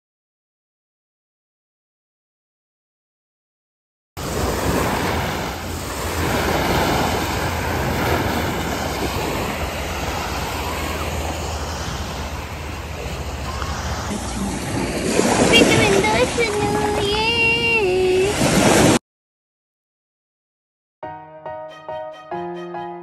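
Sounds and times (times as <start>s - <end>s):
ocean surf washing up beach: 4.2s - 19.0s
wind rumbling on microphone: 4.2s - 19.0s.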